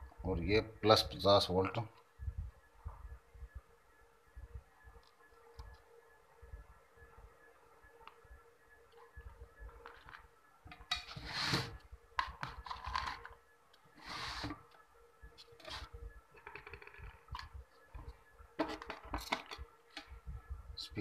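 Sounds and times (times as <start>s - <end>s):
faint steady hum: 0.0s - 21.0s
circuit board scraping on mat: 11.0s - 11.8s, 14.0s - 14.6s, 15.5s - 16.0s.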